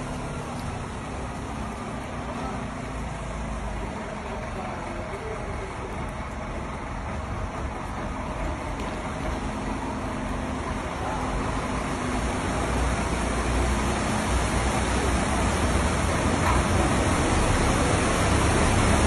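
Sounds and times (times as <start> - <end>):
lorry engine low rumble: 0.0 - 19.0
water washing: 0.0 - 19.0.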